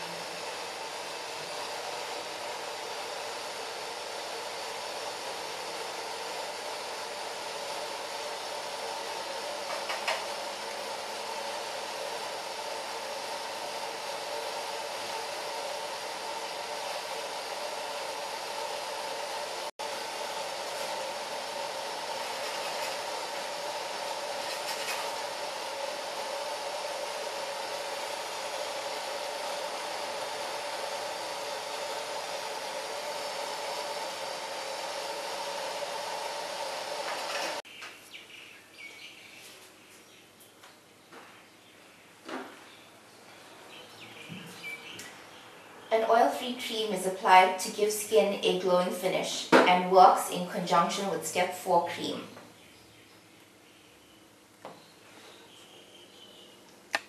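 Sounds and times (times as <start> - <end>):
facial steamer hissing: 0.0 - 37.6.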